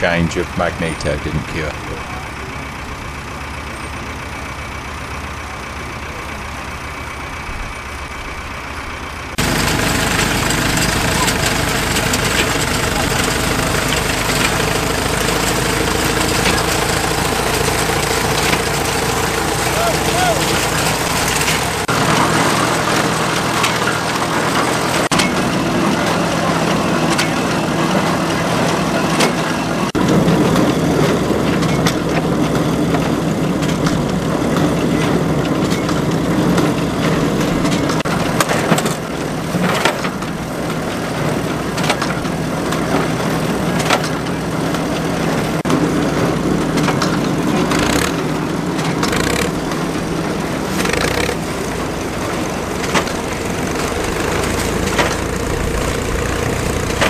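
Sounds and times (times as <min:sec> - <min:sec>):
engine running steadily: 0:00.0 - 0:57.0.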